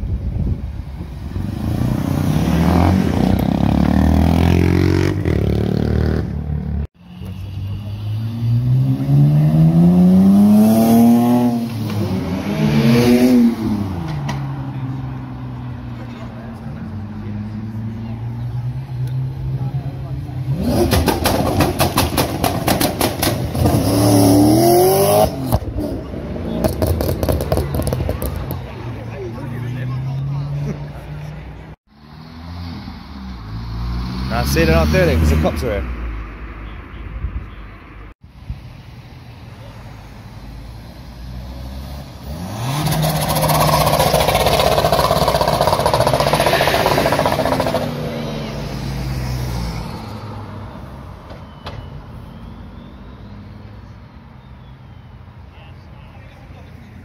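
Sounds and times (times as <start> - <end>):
car engine revving hard: 42.2 - 48.4.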